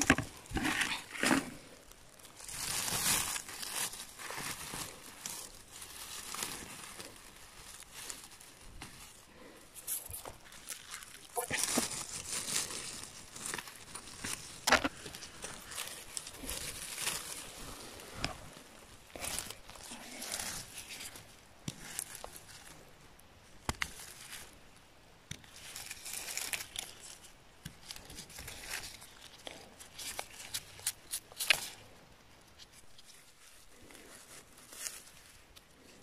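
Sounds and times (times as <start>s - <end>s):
hands rustling through moss and leaves: 0.0s - 36.0s
twigs snapping: 9.8s - 17.4s, 23.6s - 24.6s, 25.2s - 31.8s.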